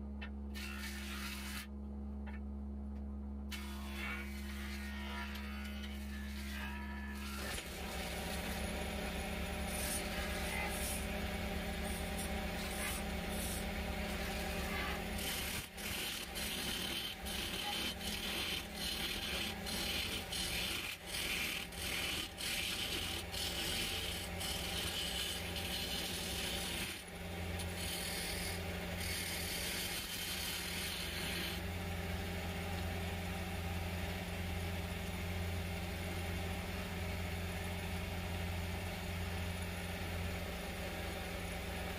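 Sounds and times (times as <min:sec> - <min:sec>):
tool scraping spinning wood: 0:03.5 - 0:31.6
lathe motor hum: 0:03.7 - 0:41.9.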